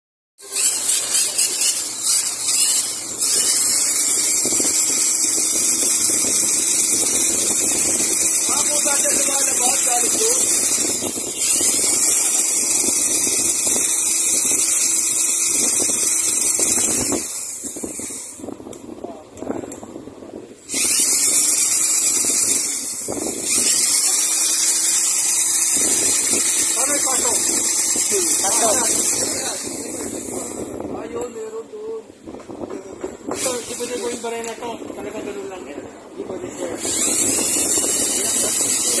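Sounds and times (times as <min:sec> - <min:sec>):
drain cleaner motor hissing: 0:00.4 - 0:18.4, 0:20.7 - 0:30.8, 0:36.8 - 0:39.0.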